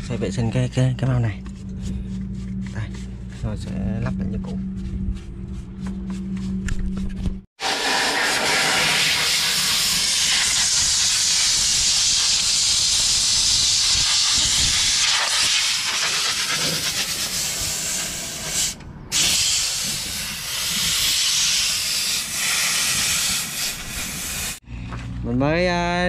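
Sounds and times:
water spraying hard: 7.6s - 24.6s.

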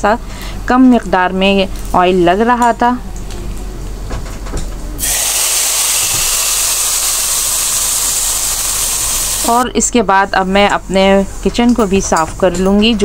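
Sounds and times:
loud steady sizzle: 5.0s - 9.6s
spices sizzling in hot oil: 5.0s - 9.6s.

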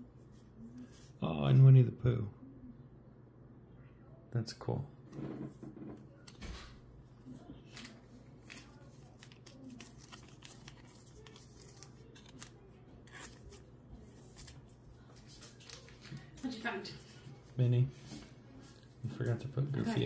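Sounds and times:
cards rustling: 7.2s - 18.9s.

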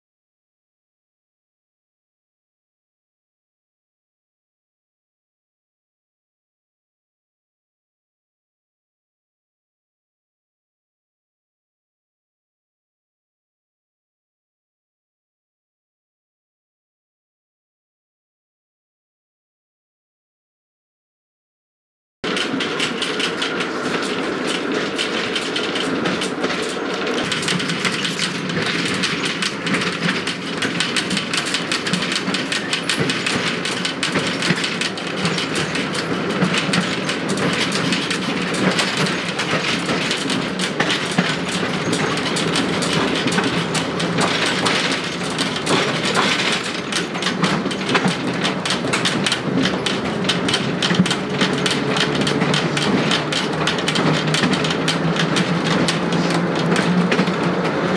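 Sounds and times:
tram wheels rumbling on rails: 22.2s - 57.9s.

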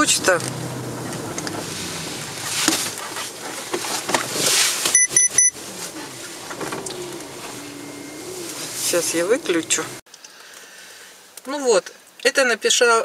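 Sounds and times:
rustling: 0.0s - 10.0s
short high electronic beeps: 4.9s - 5.6s.

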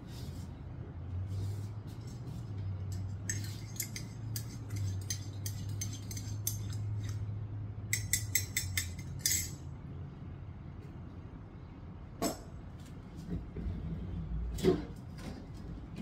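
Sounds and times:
spoon clinking in mug: 2.9s - 7.3s, 7.9s - 9.6s.

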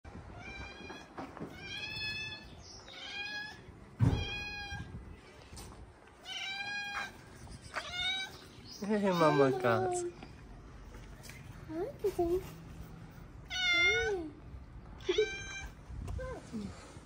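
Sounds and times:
low thump: 4.0s - 4.4s
kittens meowing: 6.2s - 10.1s.

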